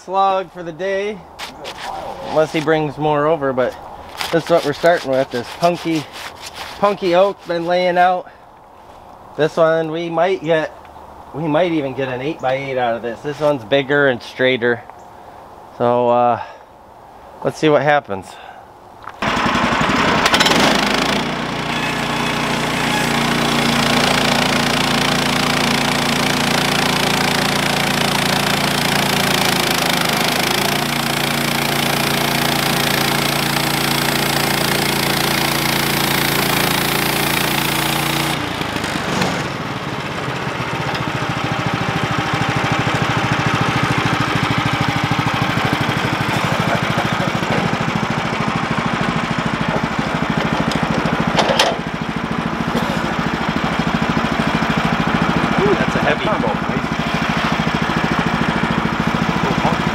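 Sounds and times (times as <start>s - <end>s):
bandsaw blade cutting log: 1.4s - 2.8s, 4.1s - 8.2s, 19.2s - 51.9s, 52.6s - 59.9s
gas engine running: 19.2s - 59.9s.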